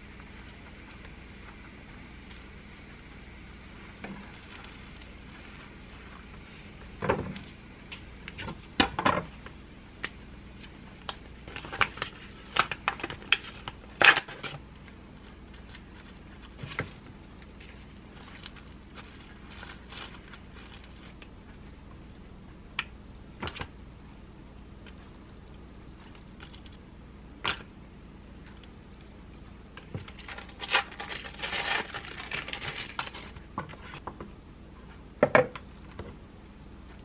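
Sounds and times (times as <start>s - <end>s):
bread crust crackling: 0.0s - 21.2s, 30.2s - 34.0s.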